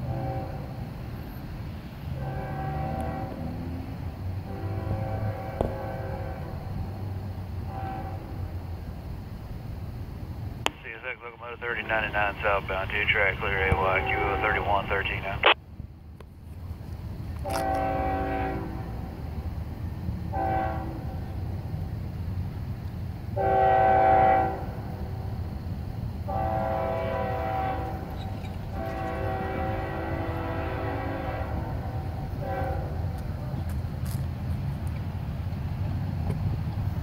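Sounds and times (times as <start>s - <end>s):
train air horn blasts: 0.0s - 0.7s, 2.2s - 3.6s, 4.4s - 6.8s, 7.6s - 8.4s, 17.4s - 19.1s, 20.3s - 21.2s, 23.4s - 24.8s, 26.3s - 33.2s
low rumble of train: 0.0s - 37.0s.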